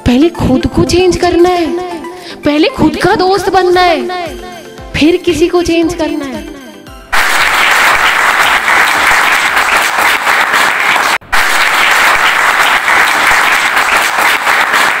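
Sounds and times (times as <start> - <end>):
audience applauding: 7.1 - 15.0.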